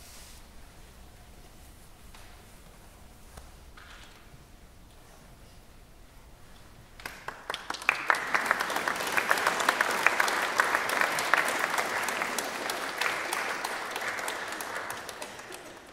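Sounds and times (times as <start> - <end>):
audience applauding: 7.0 - 15.9.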